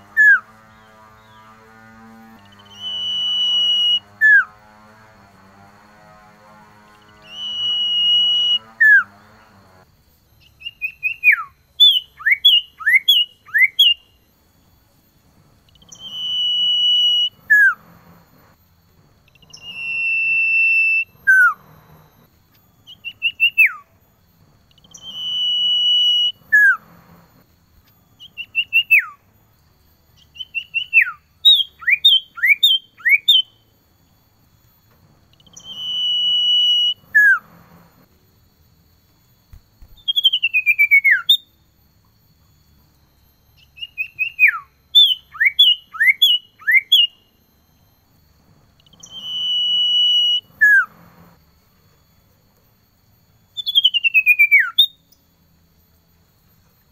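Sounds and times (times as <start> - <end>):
bird singing high whistles: 0.1 - 0.5, 2.4 - 4.5, 6.9 - 9.1, 10.4 - 14.2, 15.6 - 17.9, 19.3 - 22.2, 22.8 - 24.0, 24.7 - 27.0, 28.1 - 29.3, 30.2 - 33.8, 35.3 - 37.8, 39.5 - 41.8, 43.6 - 47.9, 48.8 - 51.3, 53.5 - 55.3.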